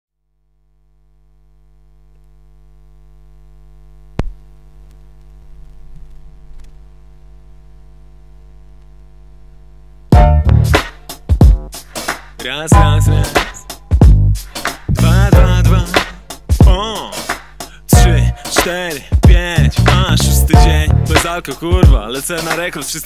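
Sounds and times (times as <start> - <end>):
electrical mains hum: 0.2 - 14.3
light crackle: 1.7 - 9.6
loud hip-hop beat: 10.1 - 23.0.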